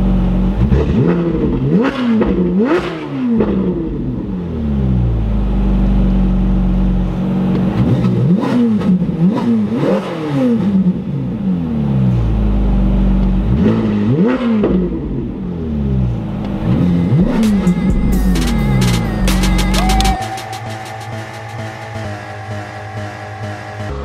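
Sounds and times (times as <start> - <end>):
car engine revving: 0.0 - 24.0
music: 16.6 - 24.0.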